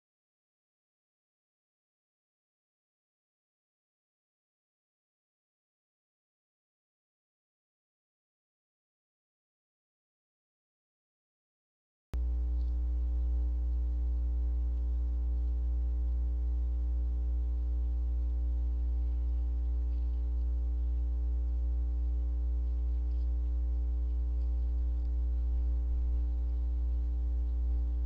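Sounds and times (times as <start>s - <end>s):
faint held tones: 12.2s - 28.0s
low electrical hum: 12.2s - 28.0s.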